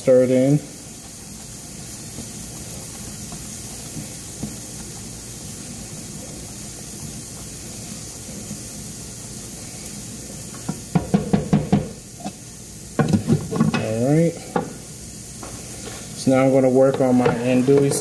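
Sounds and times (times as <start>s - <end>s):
pan steaming with steady hiss: 0.0s - 18.0s
spoon knocking against pan: 10.7s - 12.0s
wooden spoon stirring: 16.8s - 18.0s.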